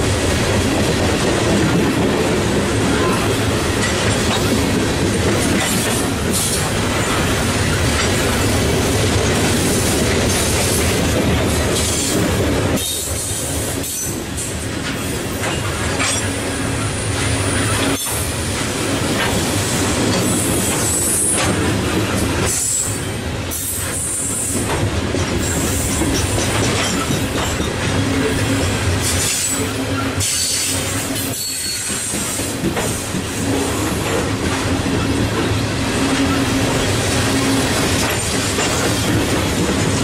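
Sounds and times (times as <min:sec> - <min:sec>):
train wheels rumbling on rail: 0:00.0 - 0:40.0
wheel squeals: 0:29.1 - 0:32.3.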